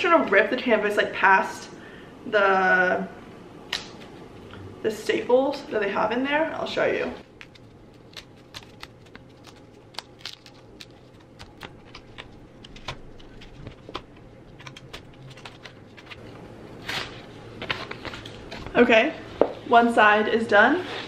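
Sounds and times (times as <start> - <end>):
scissors snipping: 7.4 - 14.0.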